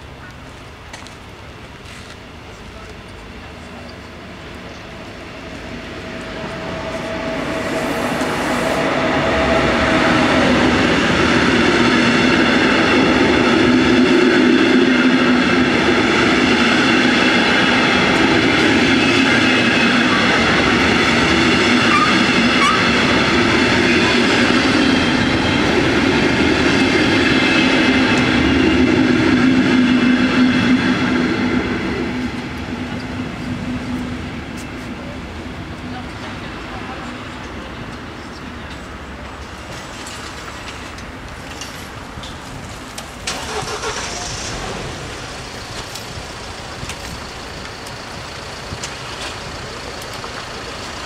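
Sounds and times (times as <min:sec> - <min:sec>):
train wheels rumbling on rail: 0:00.0 - 0:51.0.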